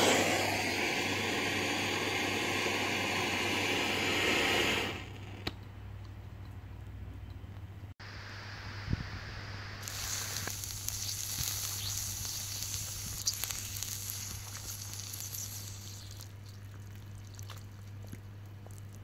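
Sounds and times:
water sizzling on hot brick: 0.0 - 5.4, 9.6 - 17.6.

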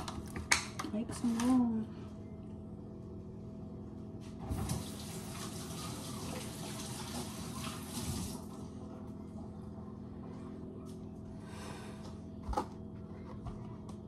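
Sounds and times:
tap water running: 4.4 - 8.5.

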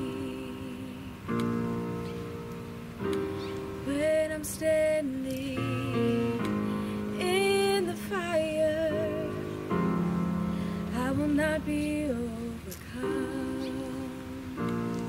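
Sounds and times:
woman singing: 0.0 - 1.6, 3.8 - 10.0, 10.7 - 15.0
keyboard chords: 0.0 - 15.0.

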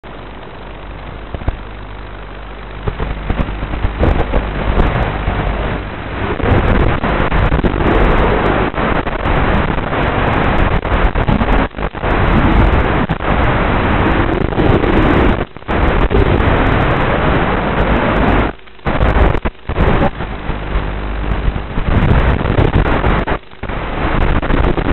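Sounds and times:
wind rush on microphone: 0.0 - 24.9
drone propellers whirring: 0.5 - 17.1.

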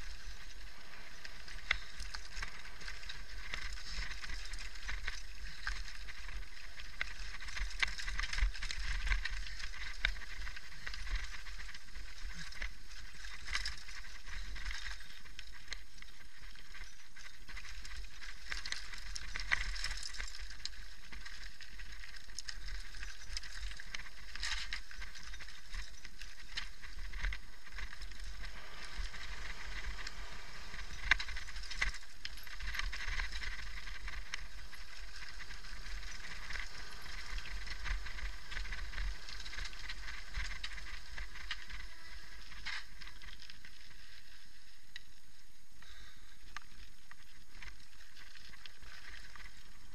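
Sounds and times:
bike rattling: 0.0 - 49.9
bike tyres crunching on gravel: 0.0 - 49.9
low rumble: 26.8 - 44.8.

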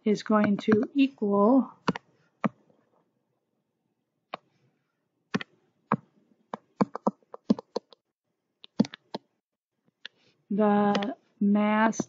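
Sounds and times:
sharp mouse clicks: 5.3 - 8.0, 8.6 - 9.3.

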